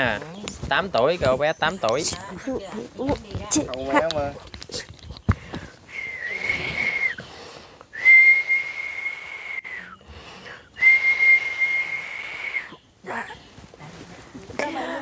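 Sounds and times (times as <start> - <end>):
person whistling high notes: 5.9 - 7.2, 8.0 - 10.0, 10.8 - 12.7.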